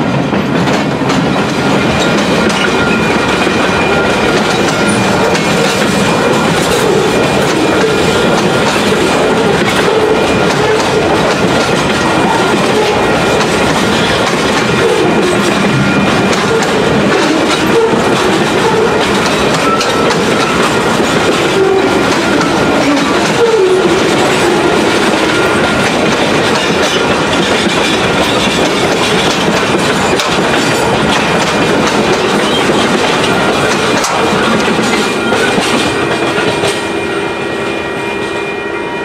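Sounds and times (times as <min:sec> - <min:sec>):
train wheels rumbling and clattering: 0:00.0 - 0:37.5
wheel squeal: 0:14.9 - 0:25.9.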